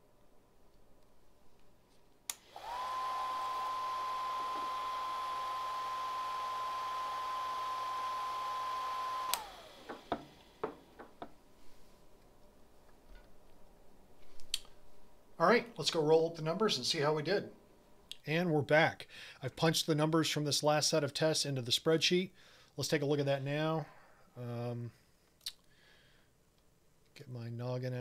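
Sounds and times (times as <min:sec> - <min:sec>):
pump whining: 0:02.4 - 0:10.7.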